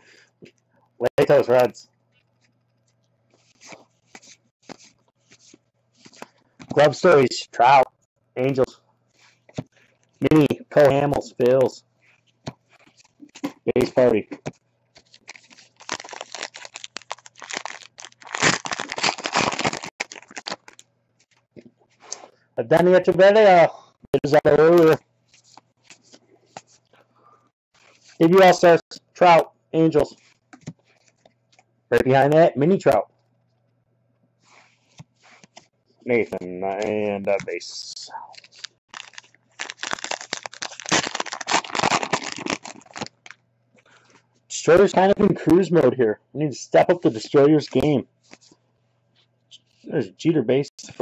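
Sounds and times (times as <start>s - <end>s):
wrapper crinkling: 15.0s - 20.9s, 38.3s - 43.4s.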